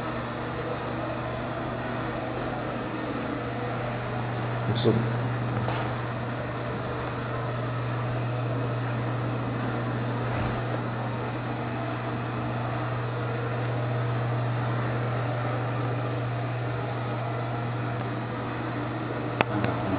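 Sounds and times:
steady low hum: 0:00.0 - 0:19.9.

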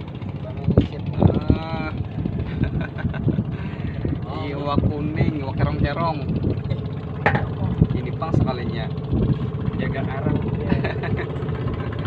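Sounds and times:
boat noise: 0:00.0 - 0:12.0
low knocking: 0:06.5 - 0:08.0.

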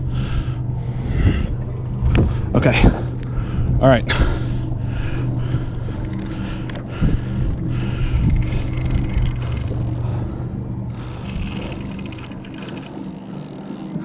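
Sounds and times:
boat engine idling: 0:00.0 - 0:14.0
fast fine ticking: 0:05.8 - 0:10.3, 0:10.9 - 0:14.0.

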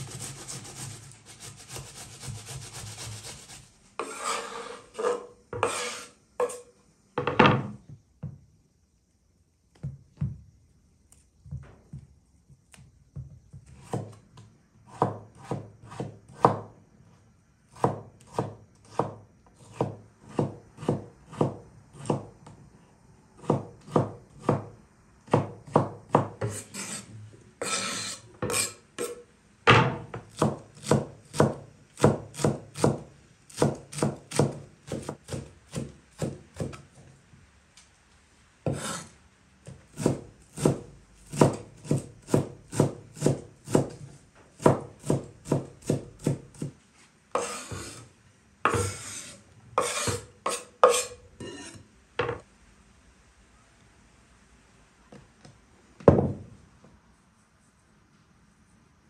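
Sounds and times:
knife scraping cutting board: 0:00.0 - 0:06.7, 0:26.4 - 0:29.2, 0:38.7 - 0:39.1, 0:47.3 - 0:48.1, 0:48.7 - 0:51.9
knife chopping on wooden board: 0:17.8 - 0:22.3, 0:25.3 - 0:27.0, 0:27.6 - 0:36.8, 0:38.7 - 0:39.0, 0:39.6 - 0:44.0, 0:44.6 - 0:46.8, 0:47.4 - 0:48.0, 0:48.6 - 0:51.2.

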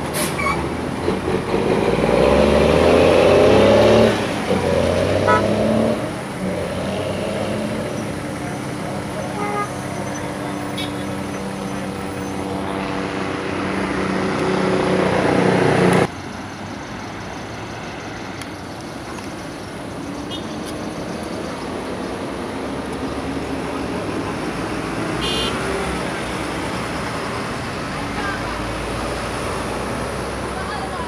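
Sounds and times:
traffic and tyre noise: 0:00.0 - 0:31.0
vehicle engine hum: 0:00.0 - 0:31.0.

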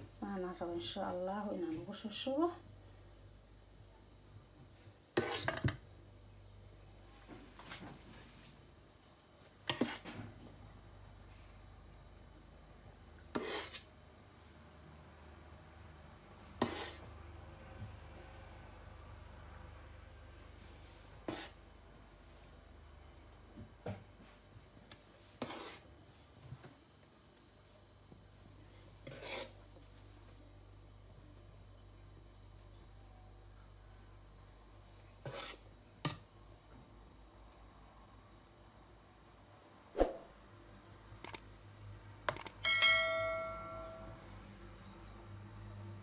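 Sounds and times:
spoon scraping: 0:13.4 - 0:13.9, 0:16.6 - 0:17.1, 0:25.4 - 0:25.8, 0:29.0 - 0:29.6
mouse clicks: 0:41.2 - 0:41.4, 0:42.3 - 0:42.6
bell chime: 0:42.6 - 0:44.3.

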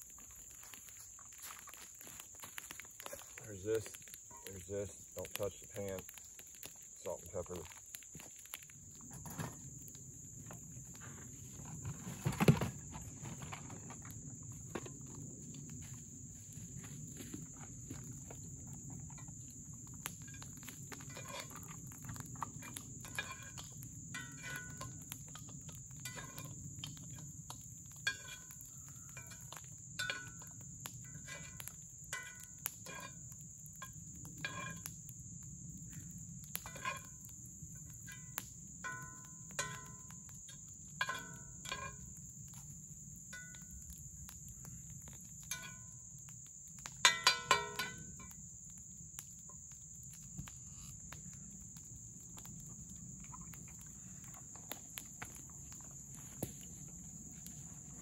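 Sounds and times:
metal spatula scraping a skillet: 0:22.6 - 0:24.9, 0:28.0 - 0:28.5.

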